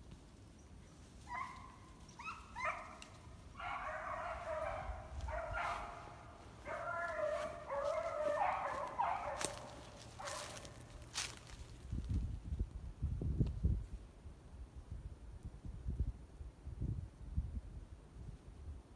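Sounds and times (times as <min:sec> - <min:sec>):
dog yipping and whining: 0:01.3 - 0:03.0.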